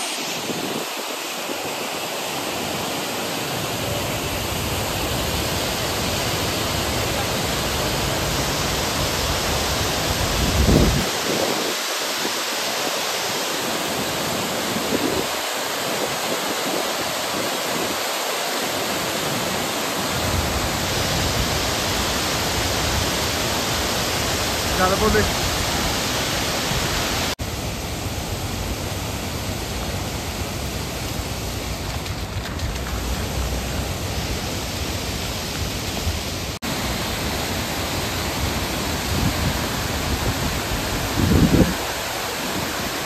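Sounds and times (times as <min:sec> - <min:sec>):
stream water rushing: 0:00.0 - 0:43.0.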